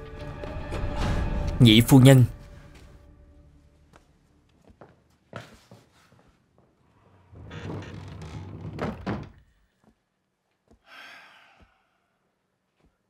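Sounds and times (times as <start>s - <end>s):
door rattling: 7.4s - 9.4s.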